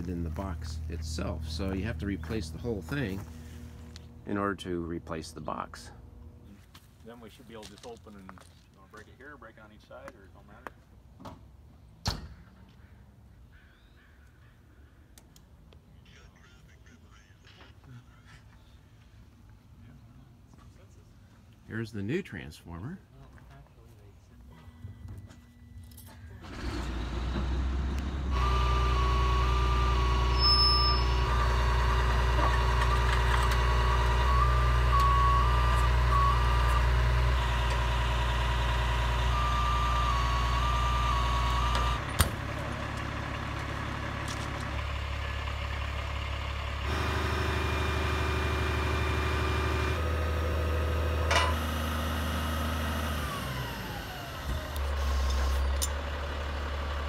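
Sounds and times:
truck engine running: 0:26.3 - 0:57.0.

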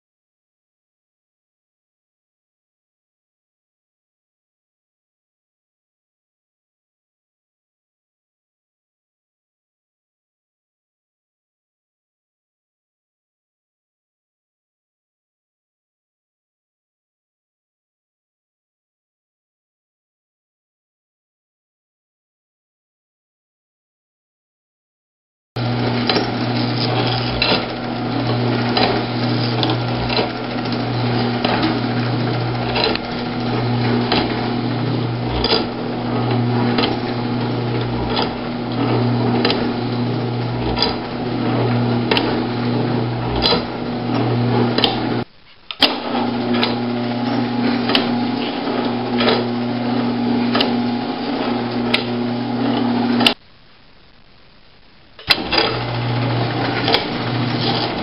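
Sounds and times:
electric motor humming: 0:25.6 - 0:45.2, 0:45.9 - 0:53.4, 0:55.3 - 0:58.0.

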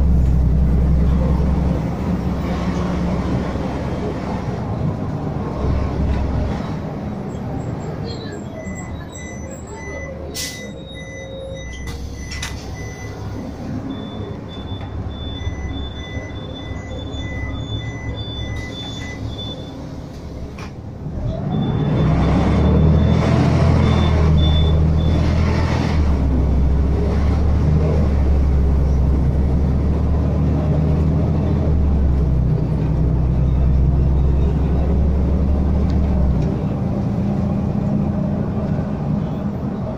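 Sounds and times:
short electronic beeps: 0:08.1 - 0:19.8, 0:21.5 - 0:25.4.

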